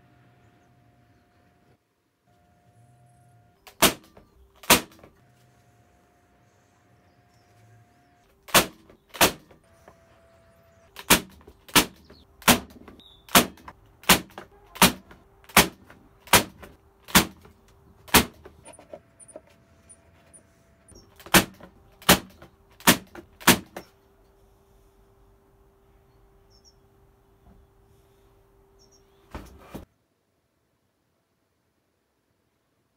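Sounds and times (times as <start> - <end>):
nail gun firing into wood: 3.6 - 5.2, 8.5 - 9.6, 11.0 - 18.5, 21.2 - 23.9.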